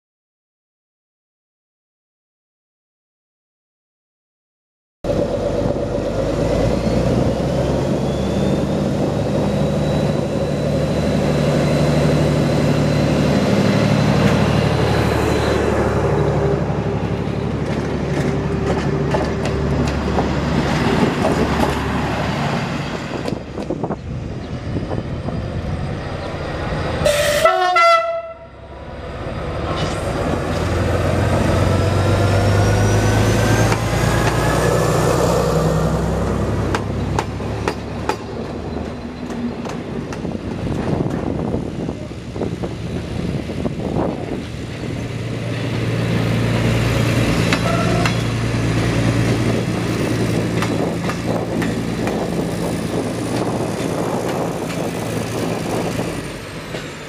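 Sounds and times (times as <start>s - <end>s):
diesel railcar engines running: 5.1s - 57.0s
train horn toot: 27.0s - 28.6s, 47.6s - 48.2s
engine revving: 29.0s - 37.3s.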